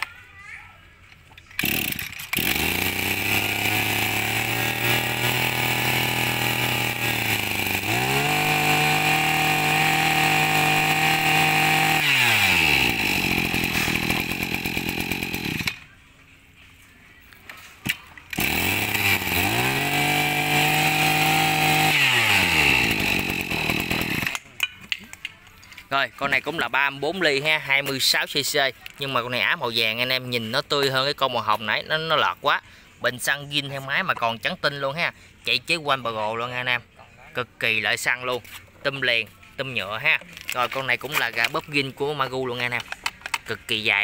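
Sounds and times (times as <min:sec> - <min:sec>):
brush cutter engine revving: 0:01.6 - 0:15.8, 0:18.3 - 0:24.5.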